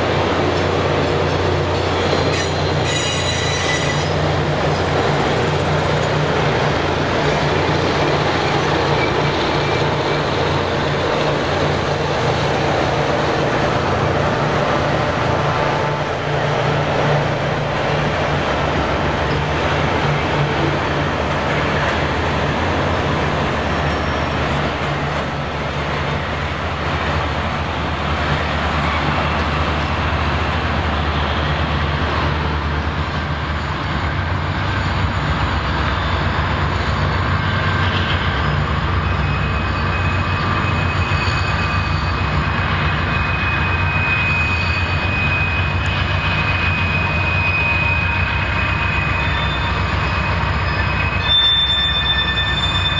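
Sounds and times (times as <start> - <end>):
diesel train rolling past: 0.0 - 52.9
thin high squeal: 1.8 - 4.2, 33.5 - 52.9.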